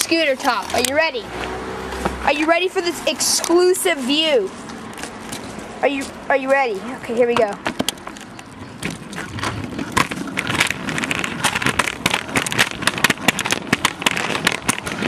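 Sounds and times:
scooter rolling on concrete: 0:00.0 - 0:15.0
scooter wheel clicks and knocks: 0:07.2 - 0:15.0.

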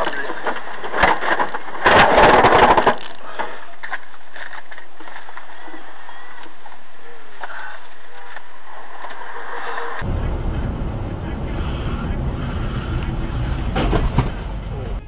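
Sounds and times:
truck cab and road noise drone: 0:10.0 - 0:15.0.

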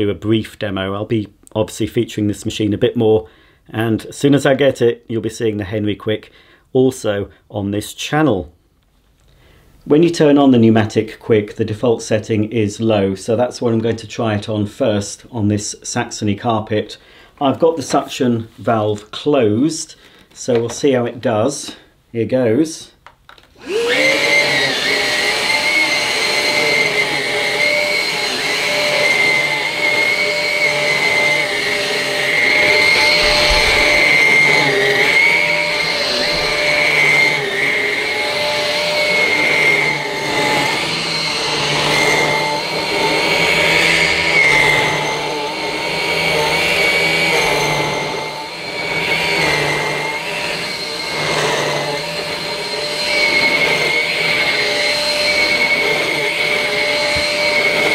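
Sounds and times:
vacuum cleaner on carpet: 0:23.6 - 0:57.9.

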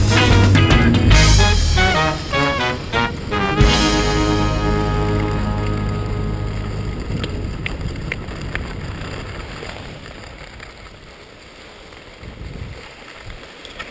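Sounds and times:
skis sliding on snow: 0:03.9 - 0:13.9
wind rushing over microphone: 0:04.8 - 0:11.1, 0:12.2 - 0:12.8.

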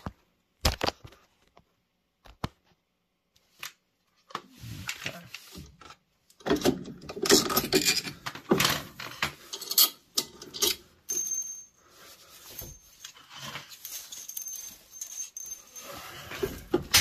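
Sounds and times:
metal screws clinking in hand: 0:09.5 - 0:11.8, 0:12.4 - 0:17.0.

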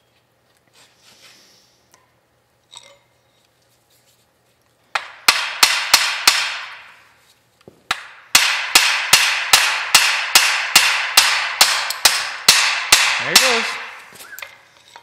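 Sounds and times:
hammer blows ringing on steel: 0:07.9 - 0:14.1.

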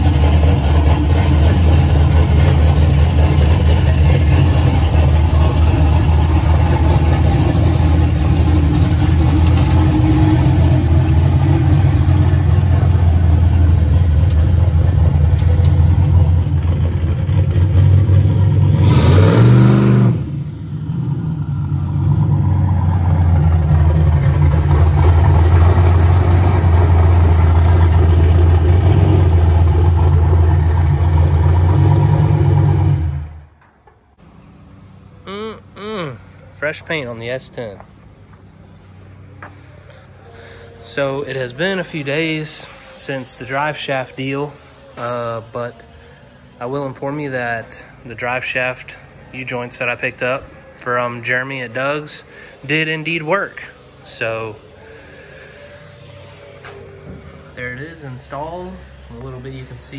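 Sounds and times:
pickup engine idling and revving: 0:00.0 - 0:33.6.

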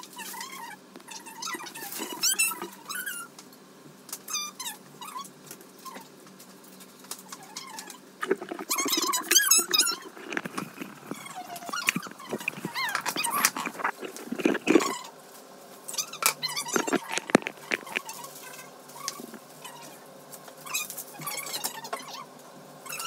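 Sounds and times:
knocks and rustles of handling: 0:06.3 - 0:15.1, 0:16.2 - 0:19.5.

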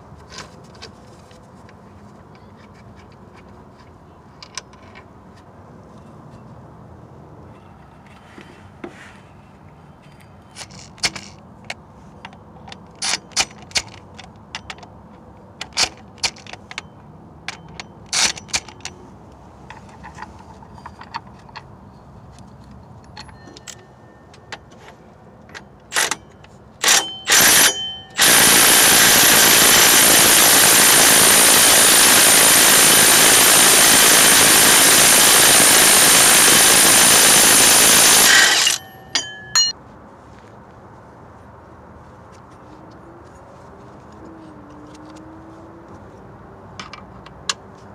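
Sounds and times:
impact wrench hammering: 0:25.9 - 0:34.5, 0:36.3 - 0:39.7.

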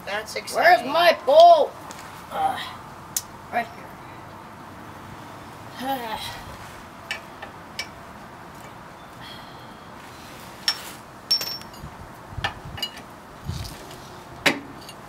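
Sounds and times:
hand tools clinking on metal: 0:10.6 - 0:11.9, 0:12.8 - 0:13.1, 0:14.8 - 0:15.0.

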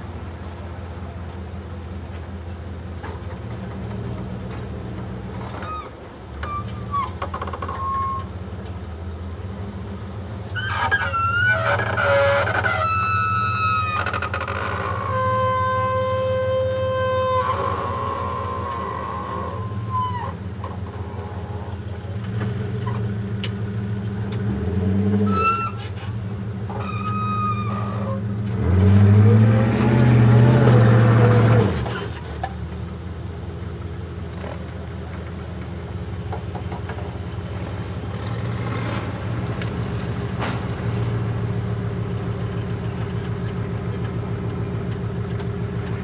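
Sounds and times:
truck engine revving: 0:03.0 - 0:46.0
short high squeals: 0:05.4 - 0:08.3, 0:10.5 - 0:21.7, 0:25.2 - 0:28.3.

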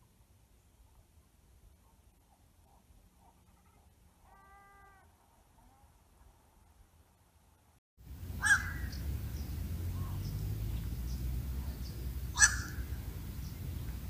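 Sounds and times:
low rumble: 0:08.0 - 0:14.0
heron harsh calls: 0:08.2 - 0:09.0, 0:11.8 - 0:13.0.

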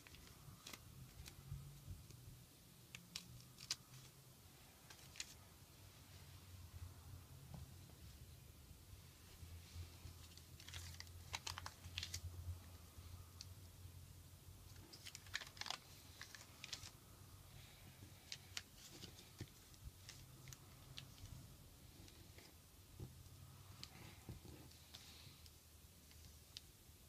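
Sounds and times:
paper being folded and creased: 0:00.0 - 0:02.1, 0:02.9 - 0:04.2, 0:04.8 - 0:05.4, 0:10.1 - 0:12.4, 0:14.7 - 0:17.0, 0:17.6 - 0:21.4.

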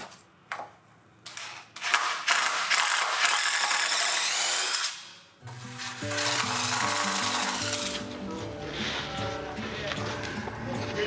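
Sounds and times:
cordless drill into wood: 0:01.8 - 0:08.0.

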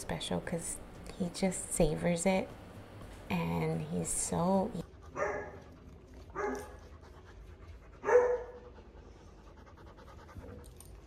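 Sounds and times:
dog panting: 0:03.7 - 0:11.0.

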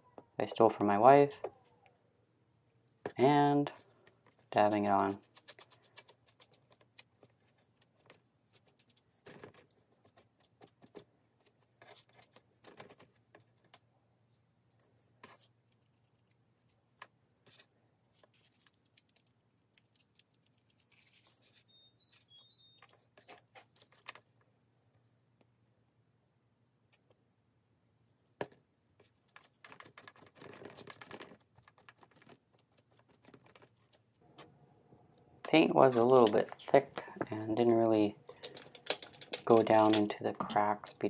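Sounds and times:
sponge dabbing paint: 0:04.2 - 0:12.2.

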